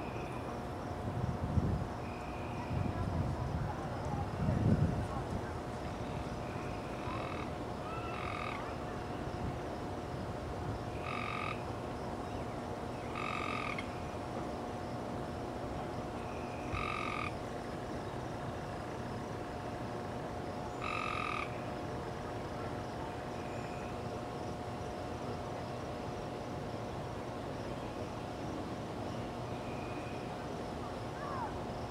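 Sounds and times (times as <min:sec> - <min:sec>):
faint steady hum: 0:00.0 - 0:31.9
frog calling: 0:06.0 - 0:09.1, 0:10.9 - 0:11.7, 0:13.0 - 0:14.1, 0:16.2 - 0:17.5, 0:20.7 - 0:21.7.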